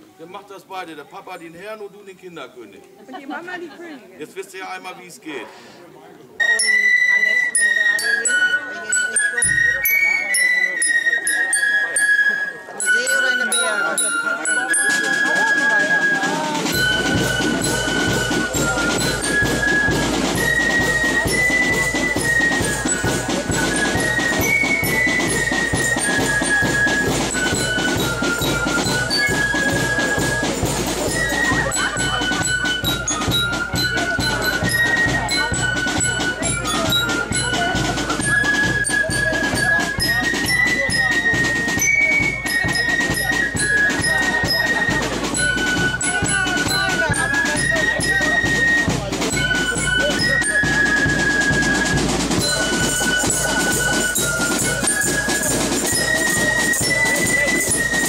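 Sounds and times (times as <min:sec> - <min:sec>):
marching band playing: 0:06.8 - 0:58.0
snare and bass drums: 0:14.9 - 0:58.0.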